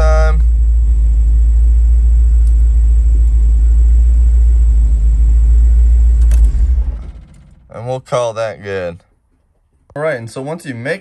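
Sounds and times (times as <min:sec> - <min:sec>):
car engine idling: 0:00.0 - 0:08.1.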